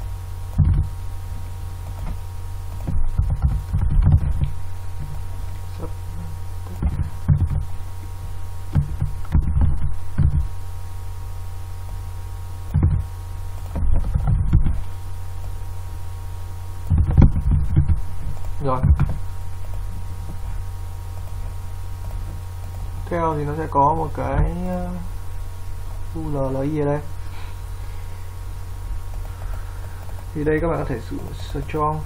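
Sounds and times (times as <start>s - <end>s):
low electrical hum: 0.0s - 32.0s
keyboard and mouse knocks: 8.7s - 10.5s.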